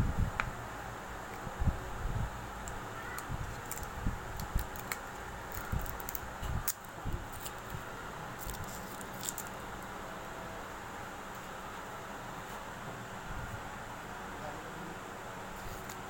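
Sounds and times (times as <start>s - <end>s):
steady background hiss: 0.0s - 16.0s
paper and plastic film crinkling: 3.4s - 7.8s, 8.4s - 9.7s.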